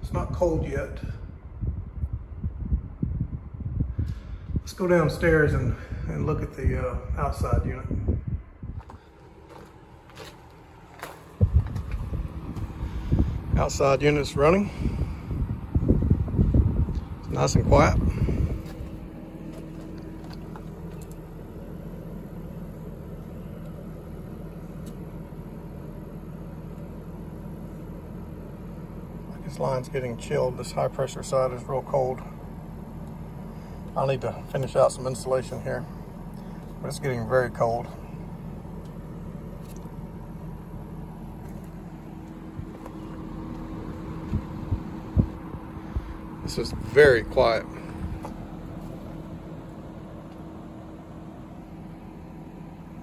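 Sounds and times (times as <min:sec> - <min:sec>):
air conditioner unit humming: 0:00.0 - 0:53.0
low bumps: 0:05.6 - 0:21.6, 0:38.7 - 0:49.3.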